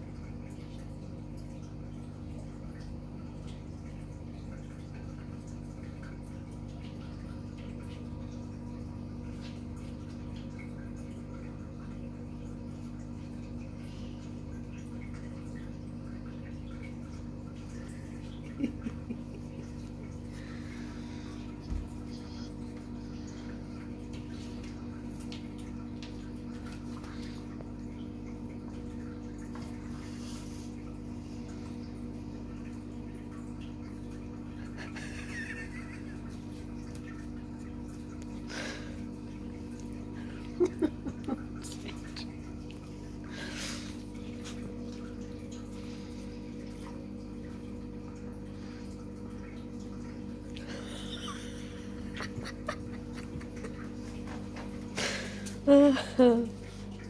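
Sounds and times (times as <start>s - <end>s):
low machine hum: 0.0s - 57.0s.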